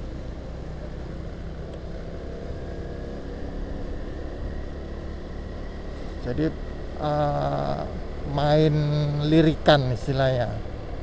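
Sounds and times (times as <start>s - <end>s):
motor scooter engine running: 0.0s - 11.0s
road and wind noise: 0.0s - 11.0s.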